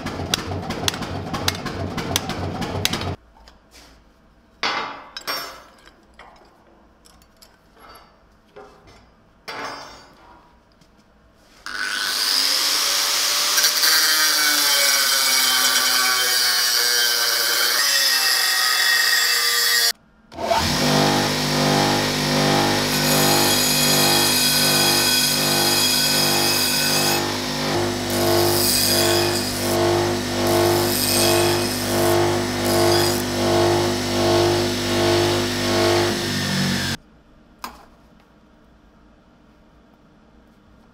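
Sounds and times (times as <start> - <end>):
angle grinder on steel: 11.7 - 37.0
belt grinder humming: 20.4 - 37.0.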